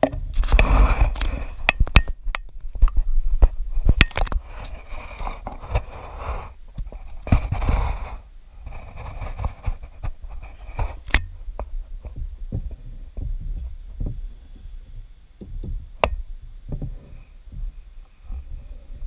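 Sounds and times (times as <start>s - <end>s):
wooden screen knocks and thumps: 15.4s - 17.8s.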